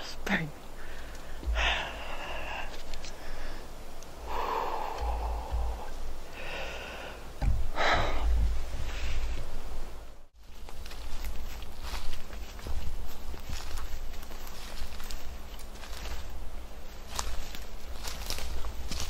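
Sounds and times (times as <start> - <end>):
man breathing heavily: 0.7 - 9.4.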